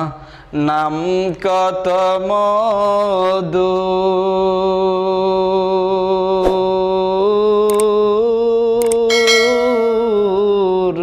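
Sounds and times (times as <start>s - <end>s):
man singing a long note: 3.1s - 11.0s.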